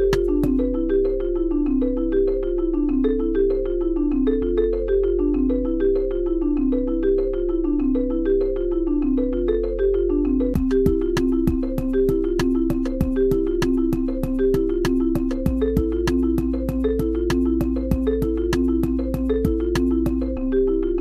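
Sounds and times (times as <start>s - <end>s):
bright repeating notes: 0.0s - 21.0s
steady low bass: 0.0s - 21.0s.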